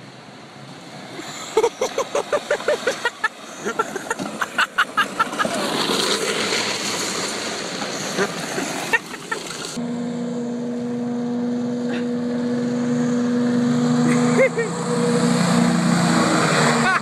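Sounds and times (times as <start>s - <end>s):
small vehicle engines: 0.0s - 17.0s.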